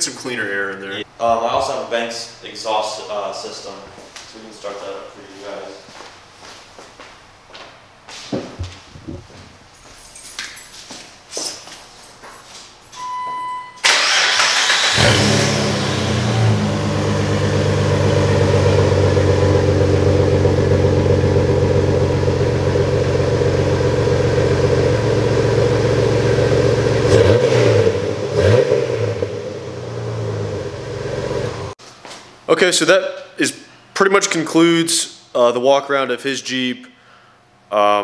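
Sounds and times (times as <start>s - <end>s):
car engine starting and idling: 13.8s - 31.8s.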